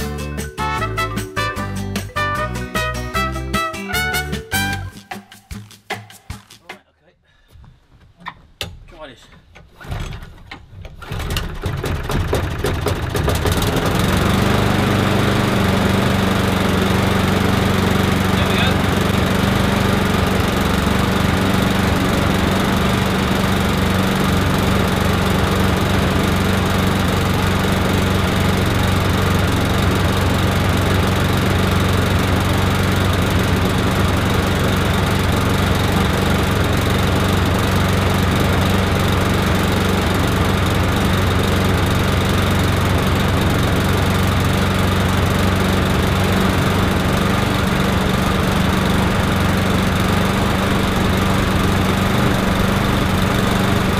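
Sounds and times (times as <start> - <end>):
lawnmower engine running: 10.2 - 53.9.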